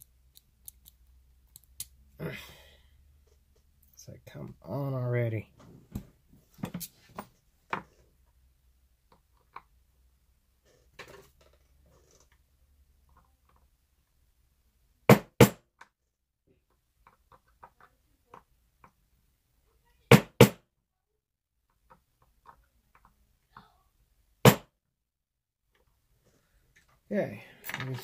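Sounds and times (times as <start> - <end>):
faint small metal clicks: 0.0 - 2.0.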